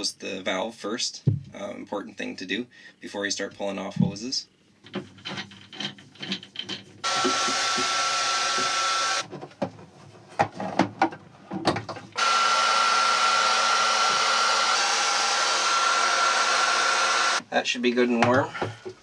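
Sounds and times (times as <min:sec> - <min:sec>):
clicks and knocks of hose fittings: 0:04.8 - 0:07.0
heat gun hissing and whining: 0:07.0 - 0:09.2, 0:12.2 - 0:17.4.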